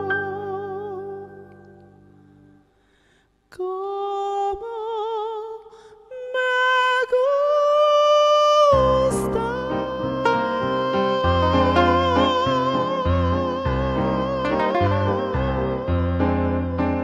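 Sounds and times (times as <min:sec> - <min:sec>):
soprano singing with vibrato: 0:00.0 - 0:01.7, 0:03.5 - 0:17.0
keyboard and guitar accompaniment: 0:00.0 - 0:02.6, 0:08.8 - 0:17.0.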